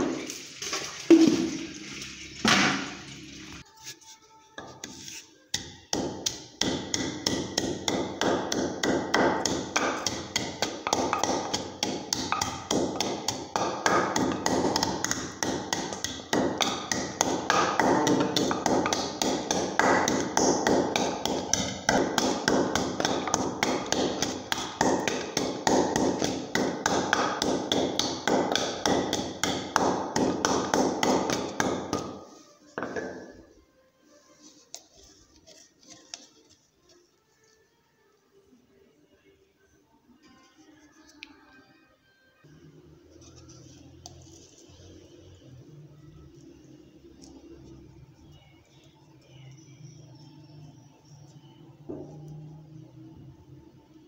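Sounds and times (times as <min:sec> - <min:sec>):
pestle pounding in wooden mortar: 0:05.5 - 0:33.3.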